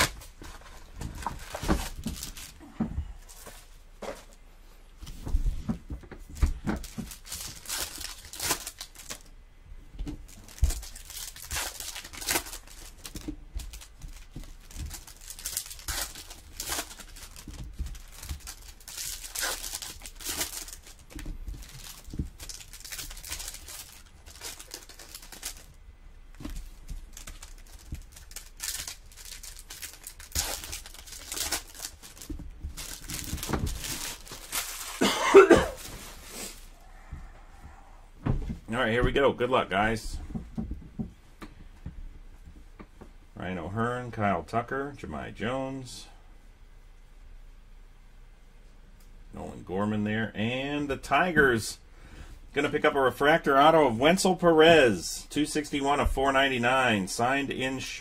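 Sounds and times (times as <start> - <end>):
plastic wrappers crinkling and tearing: 0.0 - 2.7, 6.3 - 9.3, 10.2 - 36.7.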